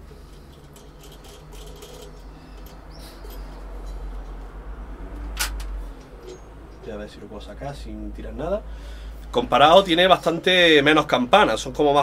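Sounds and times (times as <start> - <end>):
small clicks and rattles: 0.2 - 3.6.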